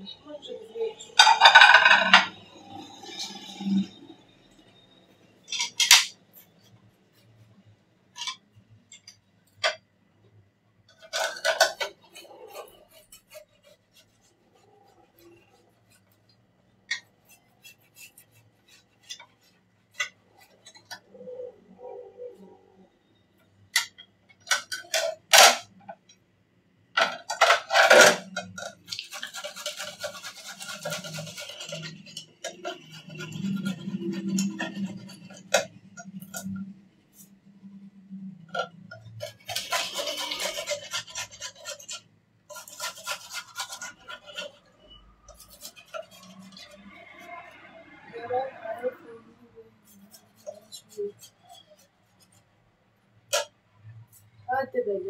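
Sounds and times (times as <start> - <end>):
dishes and utensils clinking: 1.2 - 3.9, 5.5 - 6.2, 11.0 - 12.6.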